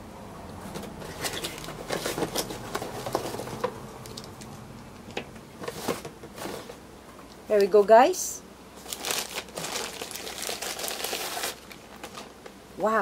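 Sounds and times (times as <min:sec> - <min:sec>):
plastic packaging crinkling: 0:00.7 - 0:04.5, 0:08.8 - 0:12.6.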